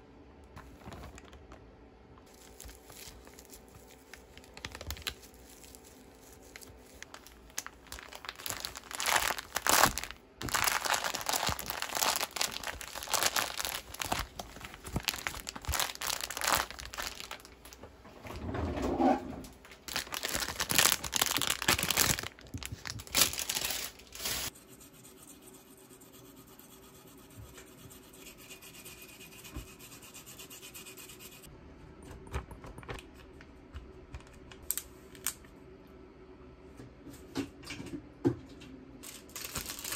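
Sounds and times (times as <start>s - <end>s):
plastic bag crinkling: 2.2s - 17.8s, 19.7s - 24.5s, 39.0s - 39.9s.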